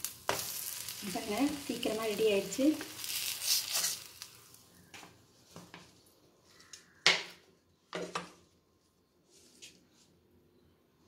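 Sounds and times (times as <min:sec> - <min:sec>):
spatula scraping a hot griddle: 0:00.0 - 0:01.7, 0:02.8 - 0:04.5.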